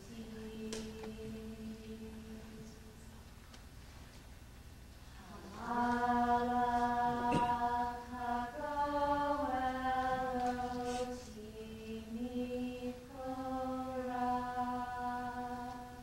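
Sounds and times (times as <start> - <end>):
slow chant of sung notes: 0.0 - 3.2, 5.1 - 16.0.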